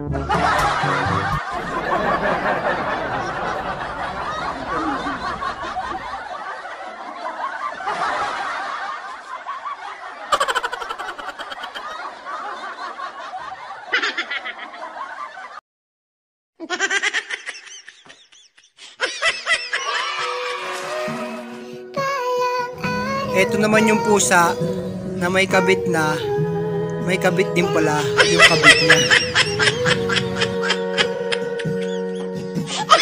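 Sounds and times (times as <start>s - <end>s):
people laughing: 0.2s - 15.6s, 16.7s - 21.4s, 27.6s - 33.0s.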